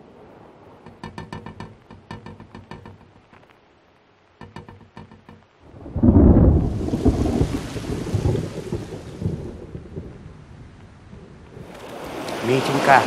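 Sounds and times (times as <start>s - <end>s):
rain hiss: 0.0s - 13.0s
thunderclap rolling: 5.6s - 13.0s.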